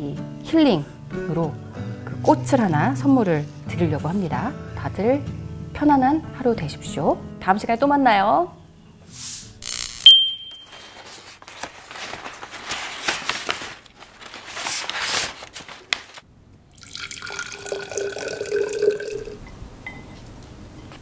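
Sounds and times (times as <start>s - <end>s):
short bright chime: 10.1s - 11.0s
flower stems being handled: 10.5s - 16.2s
wrapping paper crinkling: 10.6s - 16.2s
water running into a glass vase: 16.7s - 19.4s.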